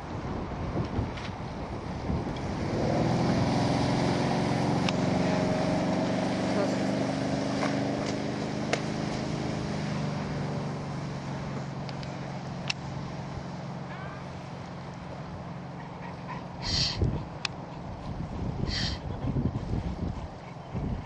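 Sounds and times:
boat engine running: 1.0 - 21.0
short high-pitched call: 16.6 - 17.0.

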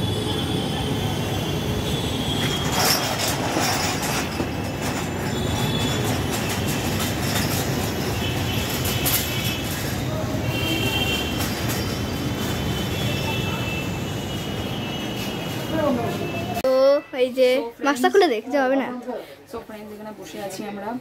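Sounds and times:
rumble of passing vehicles: 0.0 - 16.6.

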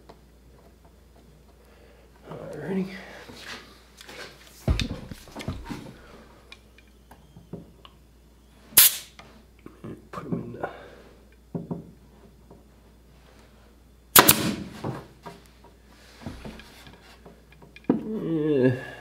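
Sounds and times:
pneumatic nailer pop: 8.8 - 9.2, 14.2 - 14.7.

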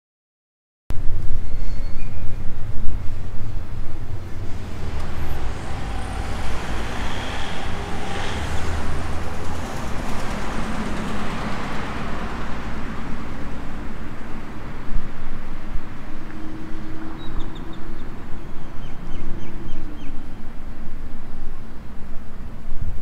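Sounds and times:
steady low traffic rumble: 0.9 - 23.0
vehicle passing close by: 3.8 - 18.3.

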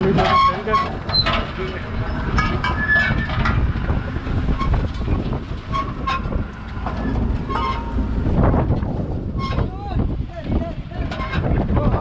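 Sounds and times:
clanks: 0.0 - 9.8, 10.4 - 12.0
boat engine rumble: 0.0 - 12.0
short squeaks: 0.2 - 3.7, 4.5 - 8.2.

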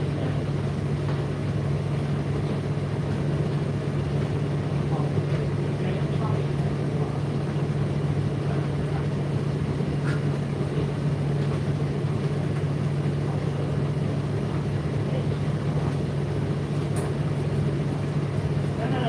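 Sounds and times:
tumble dryer humming: 0.0 - 19.0.

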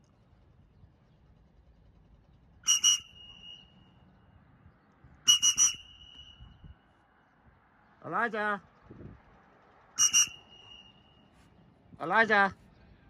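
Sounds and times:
whistle short blasts: 2.6 - 4.0, 5.3 - 6.8, 10.0 - 11.4.

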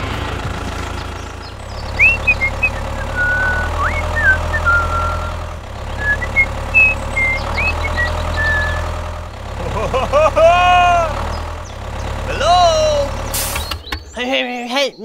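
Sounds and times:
low engine hum: 0.0 - 14.4
bird chirps and whistles: 1.7 - 5.4, 6.0 - 8.9.

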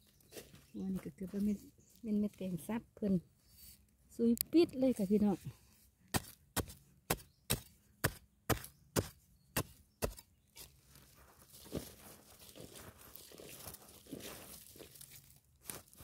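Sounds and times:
hands scraping loose dirt: 5.2 - 16.0
digging tool striking hard soil: 6.1 - 10.7.

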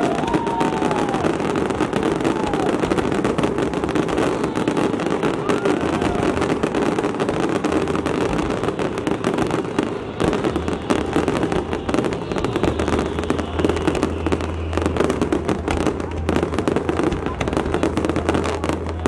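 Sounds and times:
fireworks crackling and banging: 0.0 - 19.0.

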